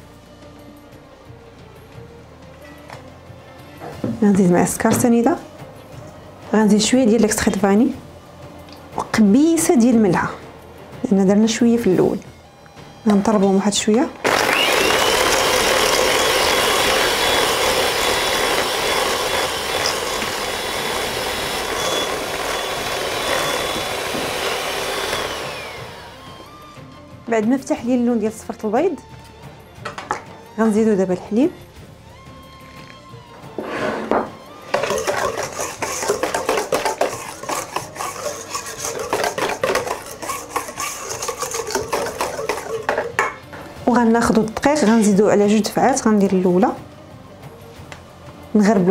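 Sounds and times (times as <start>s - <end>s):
electric hand mixer whining: 14.2s - 26.8s, 34.1s - 43.4s
beaters whisking in metal bowl: 14.3s - 26.0s, 34.7s - 43.4s
whisk rattling against metal bowl: 34.8s - 43.4s.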